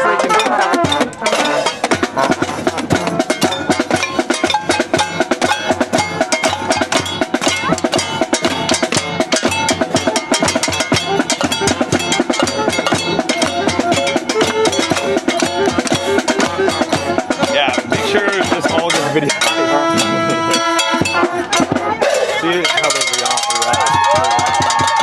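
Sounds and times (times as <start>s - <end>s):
crowd banging drums: 0.0s - 25.0s.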